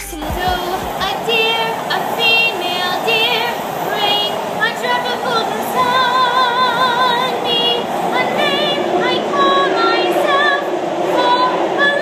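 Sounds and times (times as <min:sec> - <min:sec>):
subway car rumbling: 0:00.0 - 0:12.0
woman singing wordless notes: 0:00.0 - 0:12.0.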